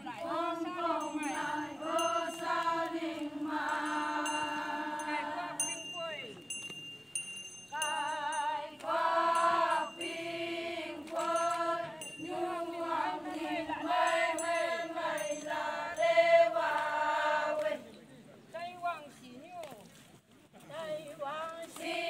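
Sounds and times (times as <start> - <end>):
women singing in unison: 0.0 - 5.8, 7.7 - 17.9, 21.2 - 22.0.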